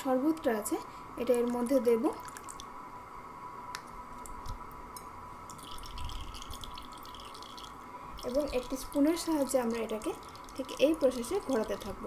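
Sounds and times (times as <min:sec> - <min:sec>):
pulp pouring and dripping through strainer: 0:02.2 - 0:02.7, 0:05.5 - 0:12.0.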